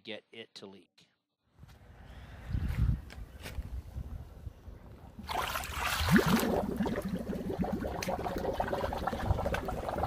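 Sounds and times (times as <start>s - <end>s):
water gurgling over drain: 5.2s - 10.0s
water splashing: 5.2s - 10.0s.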